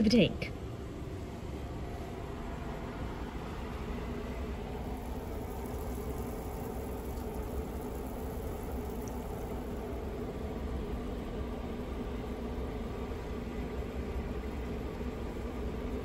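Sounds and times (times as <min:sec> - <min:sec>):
low steady hum: 0:00.0 - 0:16.0
air stone bubbling in water: 0:04.9 - 0:10.0.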